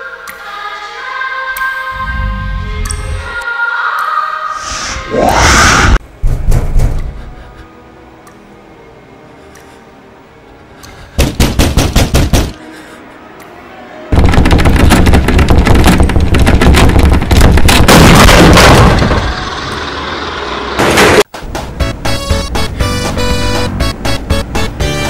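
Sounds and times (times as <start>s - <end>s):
banging on metal door: 6.2s - 7.0s.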